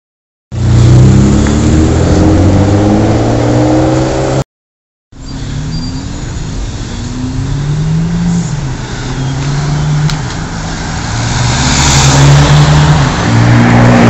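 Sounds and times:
city traffic: 0:00.5 - 0:04.4, 0:05.1 - 0:14.0.

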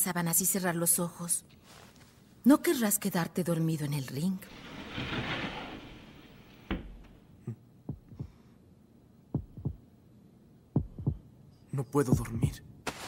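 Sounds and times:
heartbeat thumps: 0:07.9 - 0:08.5, 0:09.3 - 0:09.9, 0:10.8 - 0:11.3, 0:12.1 - 0:12.6.

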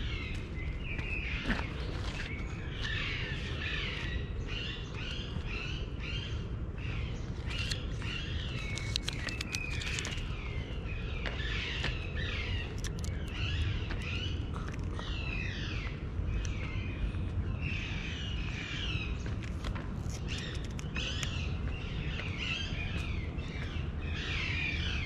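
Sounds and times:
small birds chirping: 0:00.0 - 0:25.0
steady low rumble: 0:00.0 - 0:25.0
scattered clicks: 0:08.5 - 0:10.4, 0:12.6 - 0:15.0, 0:19.4 - 0:21.4.

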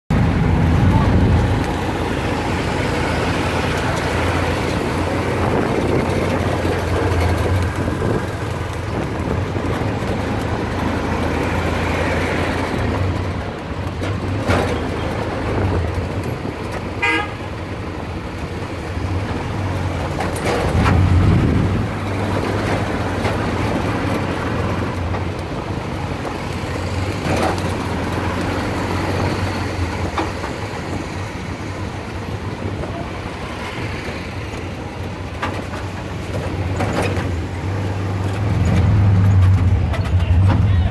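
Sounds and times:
passing vehicle rumble: 0:00.1 - 0:40.9
vehicle engine humming: 0:00.1 - 0:40.9
car horn toots: 0:17.0 - 0:17.5.

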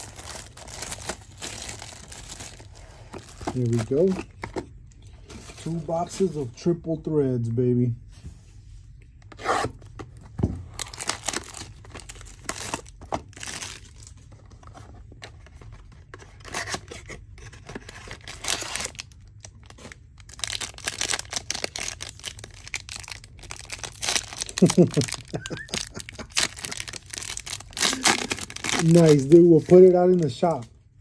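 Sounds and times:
packaging tearing and crinkling: 0:00.0 - 0:04.5, 0:10.7 - 0:14.2, 0:15.6 - 0:30.6.

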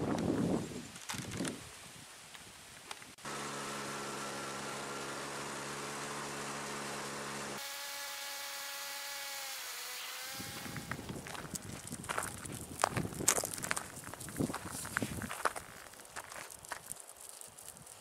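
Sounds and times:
motorcycle engine running: 0:03.2 - 0:07.6.

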